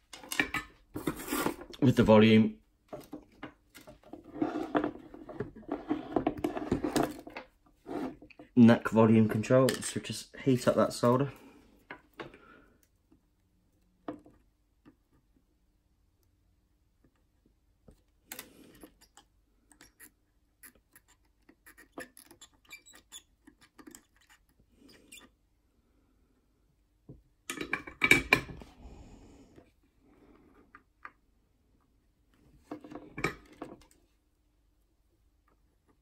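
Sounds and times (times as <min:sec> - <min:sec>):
scraping and rustling: 0:00.8 - 0:01.8, 0:03.8 - 0:08.3.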